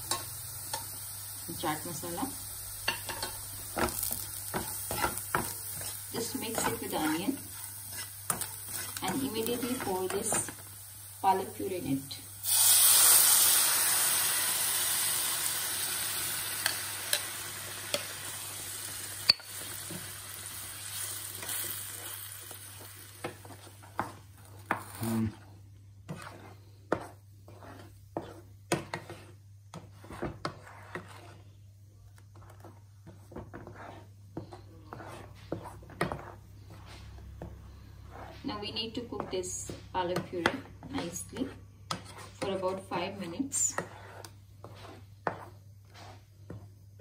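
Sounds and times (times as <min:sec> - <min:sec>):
spatula scraping and tapping pan: 0:00.0 - 0:01.0, 0:02.8 - 0:10.8, 0:16.6 - 0:18.3, 0:20.9 - 0:47.0
puree sizzling in hot oil: 0:00.0 - 0:31.5, 0:38.0 - 0:47.0.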